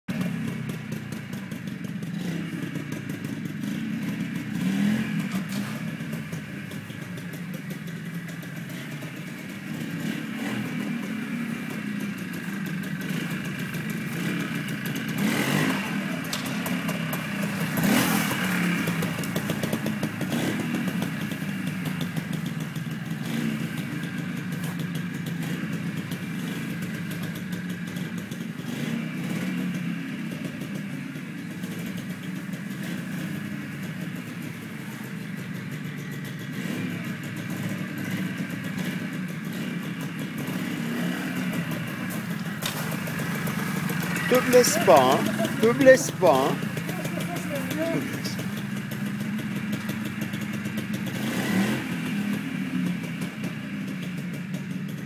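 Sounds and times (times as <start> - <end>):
motorcycle engine at low revs: 0.1 - 55.0
motorcycle throttle blips: 13.7 - 22.7.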